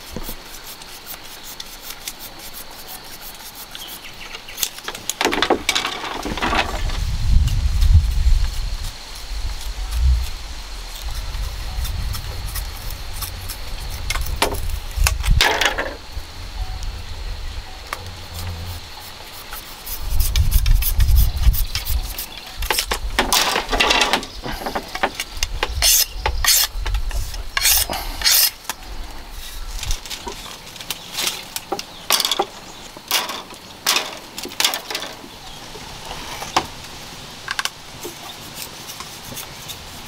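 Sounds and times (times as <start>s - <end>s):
knife scraping bamboo strips: 0.0s - 6.9s, 8.0s - 16.0s, 18.0s - 32.5s, 37.6s - 40.0s
low rumble: 6.7s - 19.4s.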